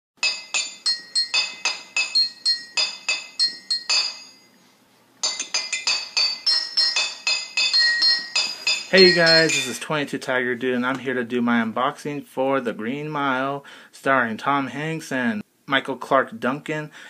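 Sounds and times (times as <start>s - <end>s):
jingle of bright struck notes: 0.2s - 4.6s, 5.2s - 9.8s.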